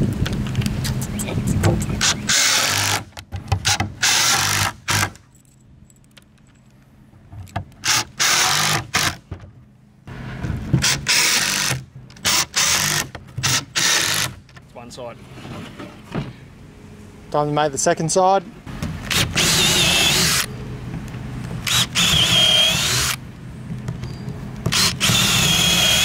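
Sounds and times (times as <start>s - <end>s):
impact driver hammering screws: 2.0s - 5.2s, 7.8s - 9.2s, 10.8s - 14.4s, 19.1s - 20.5s, 21.6s - 23.2s, 24.7s - 26.0s.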